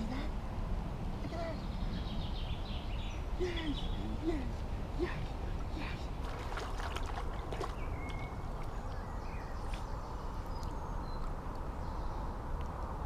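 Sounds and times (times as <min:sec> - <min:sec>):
dog splashing in water: 0:06.2 - 0:08.3
bird chirps: 0:07.3 - 0:12.3.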